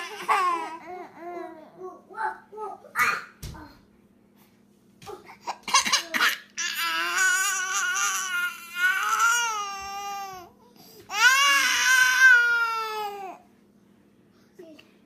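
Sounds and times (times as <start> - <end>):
baby crying: 6.6 - 10.5, 11.1 - 13.4.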